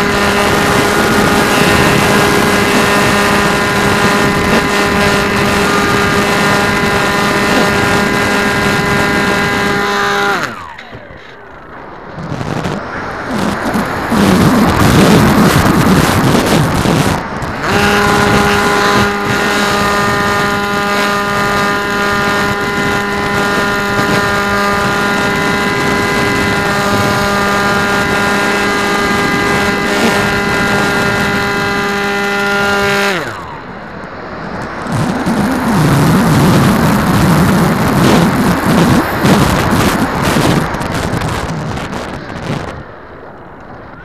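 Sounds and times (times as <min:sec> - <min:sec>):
model airplane motor droning: 0:00.0 - 0:11.6, 0:17.6 - 0:33.7
wind buffeting microphone: 0:00.0 - 0:44.0.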